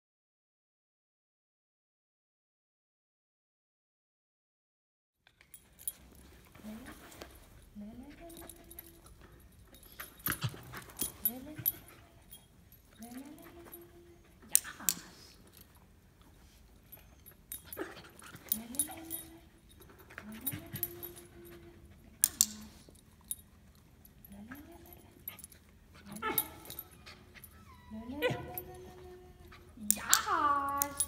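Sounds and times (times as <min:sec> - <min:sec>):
dog whining: 0:16.9 - 0:19.3, 0:24.9 - 0:31.0.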